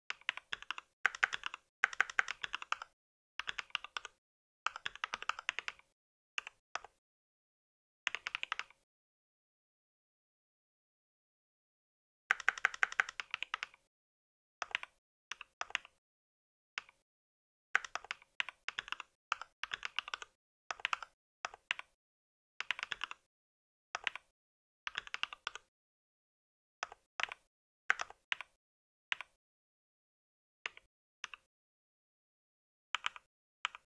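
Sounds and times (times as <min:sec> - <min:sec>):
mechanical keyboard typing: 0:00.1 - 0:07.0, 0:08.1 - 0:08.8, 0:12.3 - 0:13.9, 0:14.6 - 0:16.0, 0:17.8 - 0:22.0, 0:22.6 - 0:23.3, 0:24.0 - 0:24.3, 0:24.9 - 0:25.7, 0:26.8 - 0:29.4, 0:33.0 - 0:33.9.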